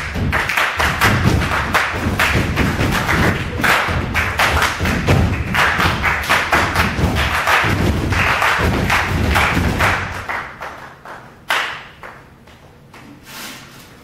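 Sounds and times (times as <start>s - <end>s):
rhythmic stomps and claps: 0.0s - 13.2s.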